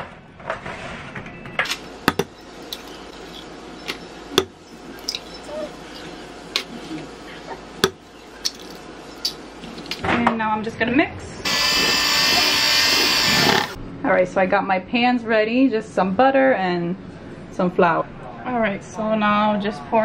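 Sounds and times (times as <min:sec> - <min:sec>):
eggs cracking: 0:01.7 - 0:06.7, 0:07.8 - 0:10.0.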